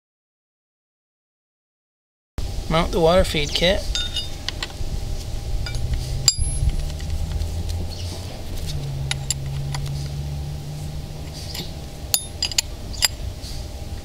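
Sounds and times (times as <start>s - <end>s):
steady low hum: 2.4s - 14.0s
wrench clinking on metal fitting: 11.5s - 13.2s.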